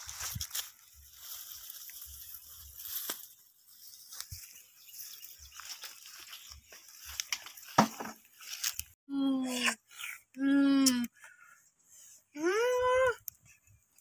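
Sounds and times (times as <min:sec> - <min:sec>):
sticks and leaves rustling: 0:00.0 - 0:09.0.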